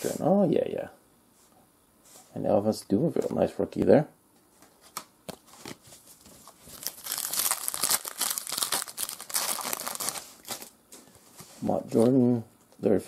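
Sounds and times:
foil wrapper crinkling: 5.6 - 10.7.

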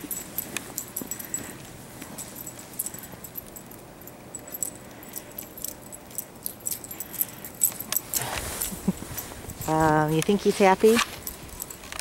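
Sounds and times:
metal collar jingling: 0.0 - 12.0
dog rustling through snow: 8.0 - 11.6.

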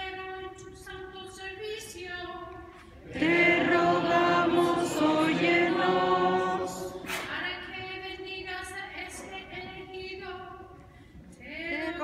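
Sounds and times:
congregation chanting together: 3.0 - 7.3.

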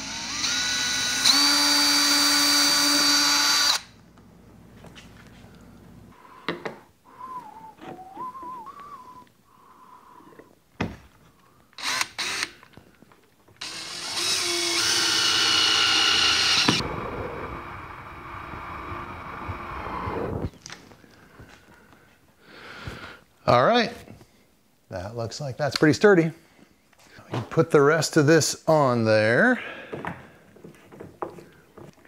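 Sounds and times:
cordless drill driving screws: 0.0 - 3.9, 11.8 - 12.6, 13.6 - 16.8.

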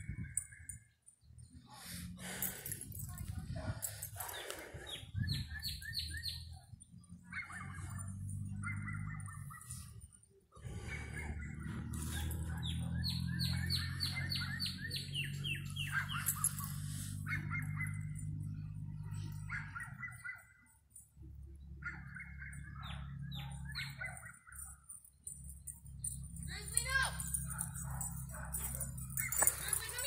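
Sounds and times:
songbirds singing: 0.0 - 30.0
steady low rumble: 1.5 - 5.9.

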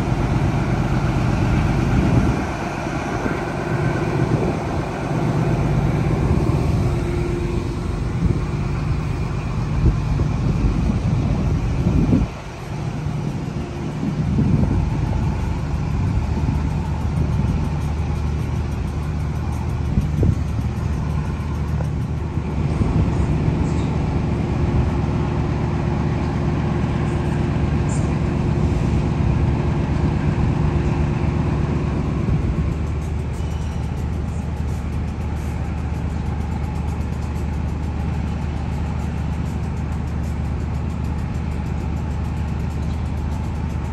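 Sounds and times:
steady higher tone: 0.0 - 25.5
locomotive engine drone: 0.0 - 43.9
train carriages passing: 0.0 - 43.9.

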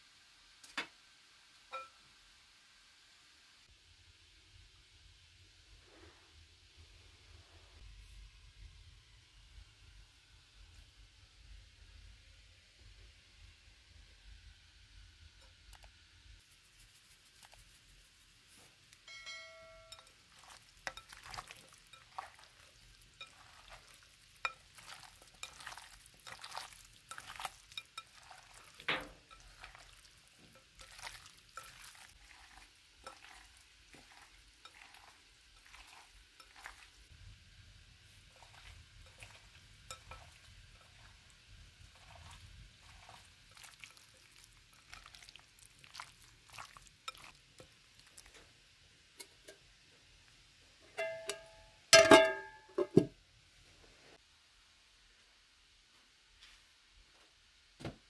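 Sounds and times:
hands squelching raw chicken: 19.9 - 37.0, 41.9 - 47.4.

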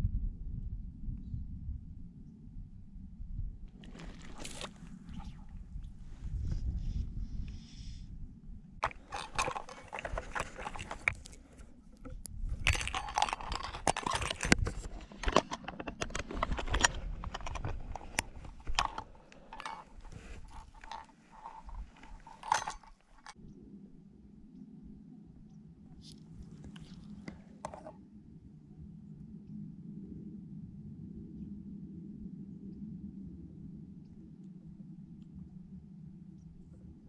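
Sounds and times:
plastic box clicks and rattles: 8.8 - 11.4, 12.6 - 23.4.

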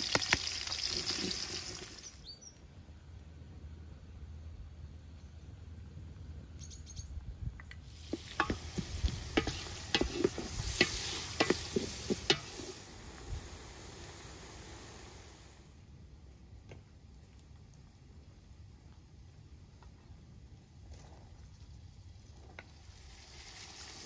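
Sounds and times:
onions sizzling in hot oil: 0.0 - 2.2, 7.8 - 15.6, 22.7 - 24.0
wooden spoon scraping a pot: 8.0 - 12.8.

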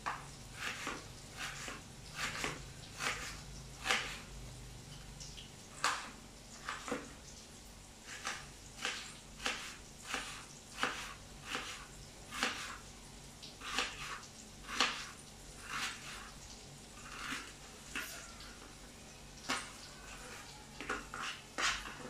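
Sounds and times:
knife slicing shallots: 0.6 - 4.3, 8.1 - 12.8.

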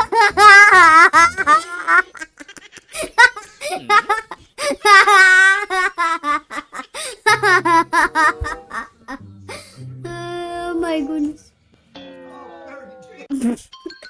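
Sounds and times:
high-pitched laughter: 0.0 - 9.2
music with held notes: 7.3 - 14.0.

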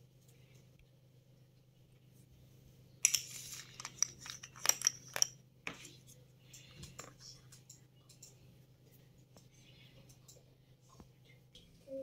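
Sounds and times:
plastic parts rustling: 3.0 - 5.8.

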